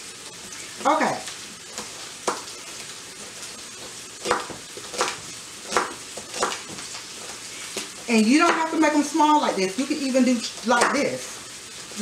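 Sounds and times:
meat sizzling in a frying pan: 0.0s - 12.0s
knife chopping on plastic board: 4.2s - 6.9s, 7.8s - 8.7s.

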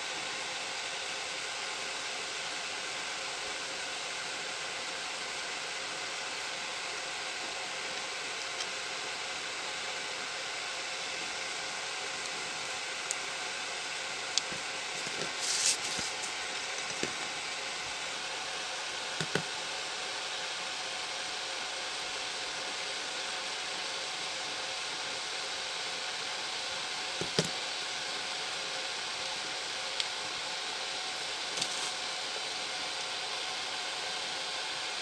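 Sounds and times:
short rustle: 15.0s - 16.4s.

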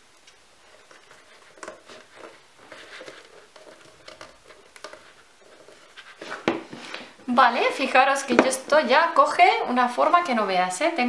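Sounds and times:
cardboard rustling and tapping: 0.8s - 7.1s.

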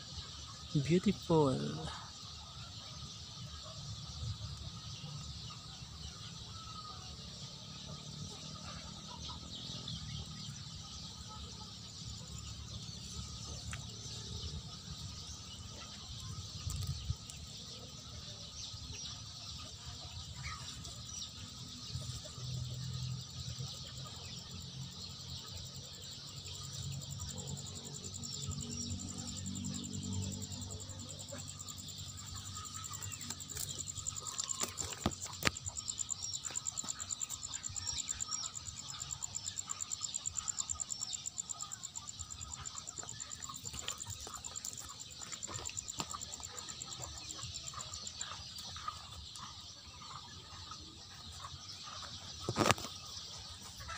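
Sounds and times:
insects chorus: 0.0s - 53.9s
bird calls: 23.7s - 53.9s.

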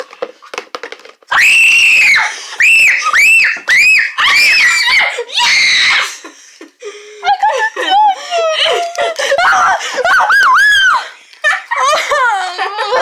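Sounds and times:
kids shrieking: 1.3s - 6.2s, 9.4s - 11.1s.

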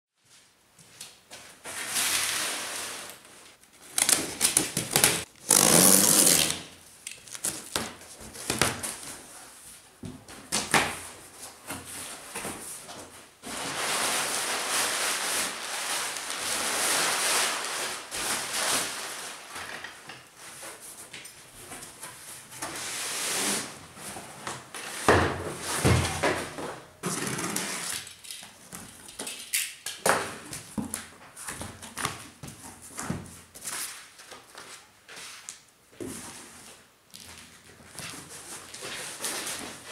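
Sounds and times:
utility knife cutting tape: 3.9s - 6.6s
packing paper rustling: 13.4s - 20.9s.

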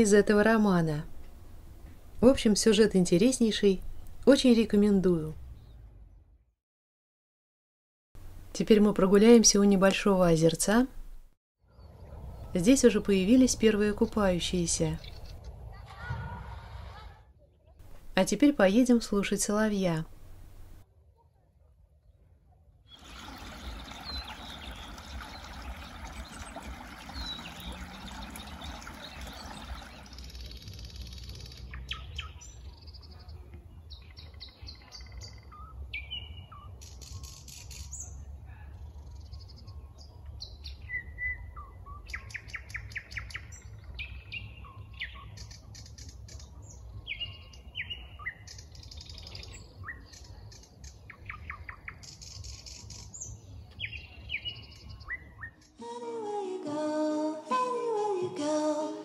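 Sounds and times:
stream babbling: 22.9s - 30.5s
nightingale singing: 22.9s - 38.2s, 39.0s - 55.9s.

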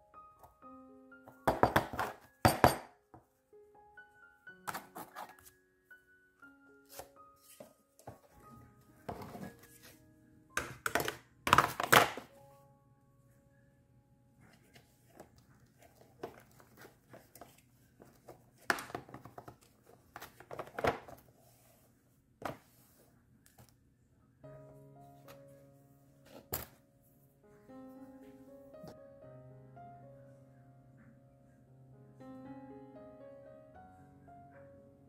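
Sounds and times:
quiet background music: 0.0s - 35.0s
plastic trays clattering: 10.6s - 12.3s.

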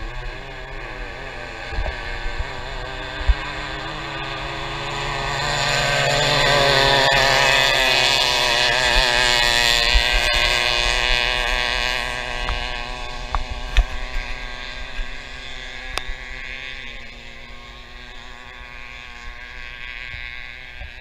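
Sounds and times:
wind buffeting microphone: 0.0s - 16.8s
racing boat engine speeding past: 0.0s - 21.0s
water noise: 0.0s - 21.0s.

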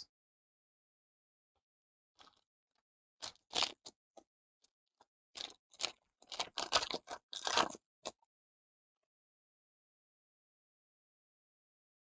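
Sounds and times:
foil wrapper crinkling and tearing: 5.4s - 7.8s.

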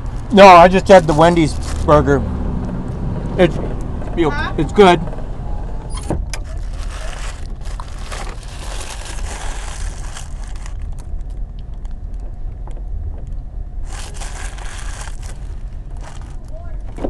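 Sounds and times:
paper wrapper crinkling: 0.0s - 2.0s, 6.4s - 11.9s, 13.8s - 16.8s
vehicle engine idling: 0.0s - 17.0s.

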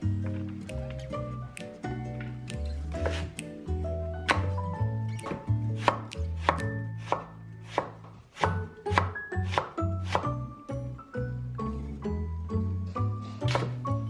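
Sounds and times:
soft background music: 0.0s - 14.0s
knife chopping on cutting board: 2.9s - 3.4s, 4.3s - 4.6s, 5.2s - 10.4s, 13.4s - 13.8s.

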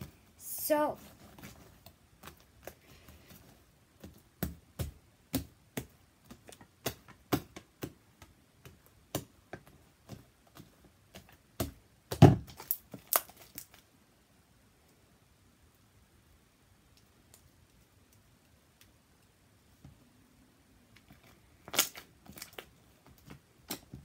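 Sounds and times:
slime squelching with wet pops: 3.9s - 13.8s.

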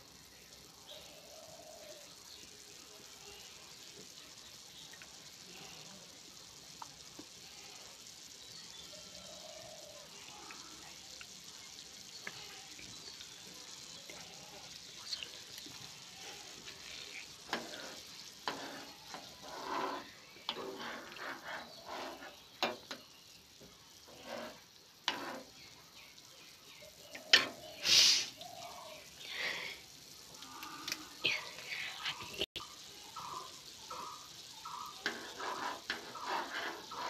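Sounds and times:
rice boiling and bubbling: 0.0s - 37.0s
spoon stirring and scraping pan: 11.2s - 25.8s, 26.9s - 27.8s, 33.2s - 37.0s.

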